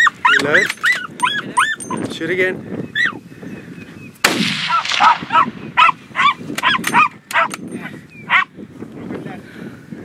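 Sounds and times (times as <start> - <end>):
dogs barking: 0.0 - 2.1, 4.7 - 7.6, 8.2 - 8.5
rifle shot with echo: 4.2 - 5.5.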